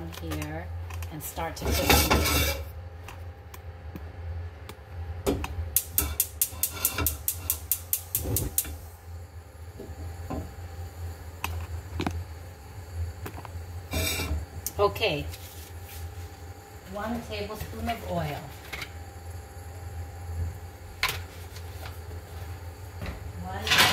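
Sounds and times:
low hum: 0.0s - 23.9s
stove igniter clicking: 4.7s - 8.9s.

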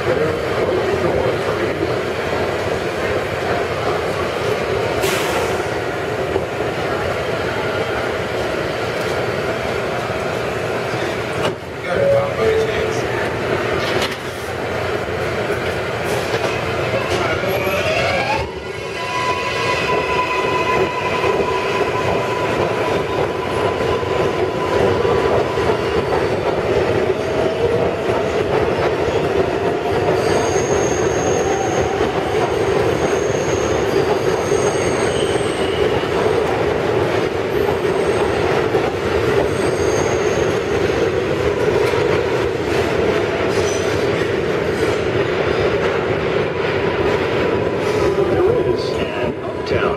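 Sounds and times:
train wheel and rail noise: 0.0s - 49.9s
high-pitched wheel squeals: 30.2s - 32.0s, 39.5s - 40.6s.

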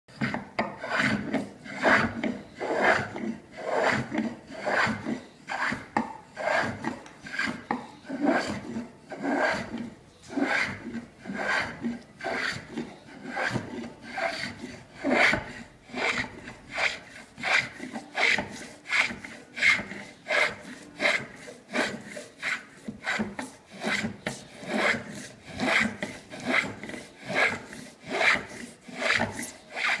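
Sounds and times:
travisher shaving wooden seat: 8.2s - 30.0s.

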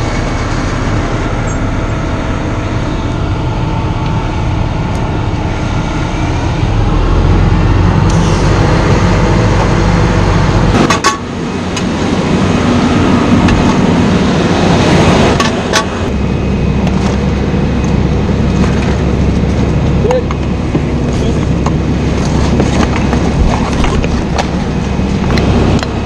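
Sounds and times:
diesel engine droning: 0.0s - 26.0s.

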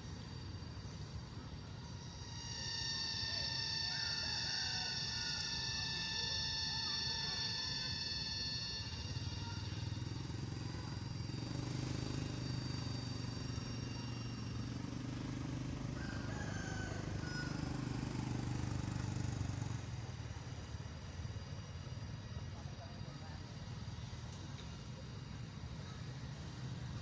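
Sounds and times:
vehicle engine passing: 9.0s - 20.9s.

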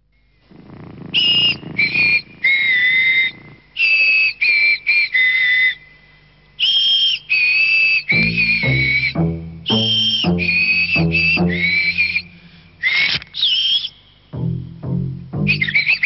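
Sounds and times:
person whistling a tune: 6.6s - 14.5s, 15.4s - 16.0s.

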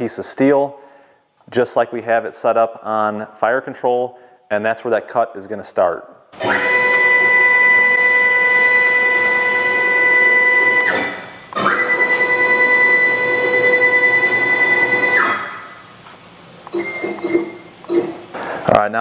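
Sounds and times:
stepper motor whine: 6.4s - 15.9s.

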